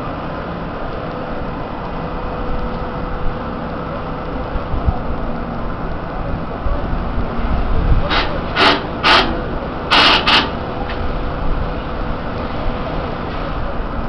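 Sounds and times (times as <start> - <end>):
engines and machinery droning: 0.0 - 14.0
short hissing noises: 8.1 - 10.6.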